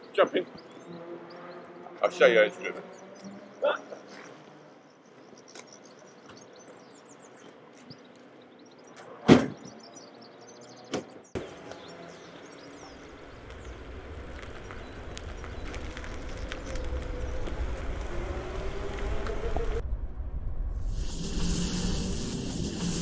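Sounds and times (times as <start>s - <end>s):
electric car low rumble: 11.5s - 23.0s.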